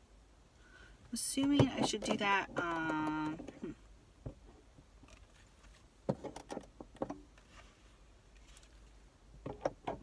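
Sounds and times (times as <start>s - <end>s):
plastic parts clicking and knocking: 1.4s - 4.4s, 6.0s - 7.4s, 9.4s - 10.0s.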